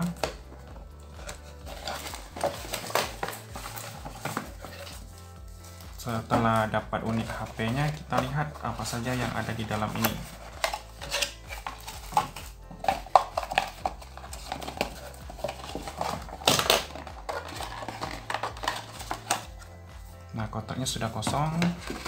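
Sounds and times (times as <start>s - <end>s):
cardboard packaging taps and scrapes: 1.2s - 5.0s.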